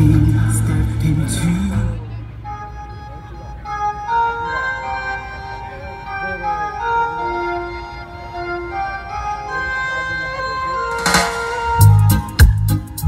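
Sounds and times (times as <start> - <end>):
steady bass: 0.0 - 2.6, 10.9 - 13.0
organ-like keyboard music: 0.0 - 13.0.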